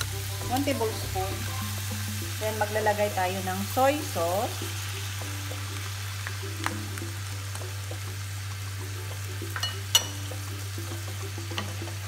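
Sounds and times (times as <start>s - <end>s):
food sizzling in frying pan: 0.0s - 12.0s
soft background music: 0.0s - 12.0s
metal spoon clinking on pan: 9.6s - 10.3s.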